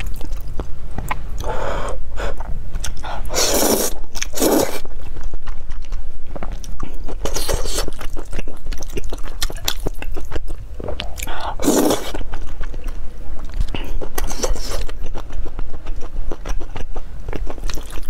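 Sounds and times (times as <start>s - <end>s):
wet chewing: 0.0s - 1.6s, 2.3s - 18.0s
noodle slurping: 3.0s - 4.8s, 11.3s - 12.2s.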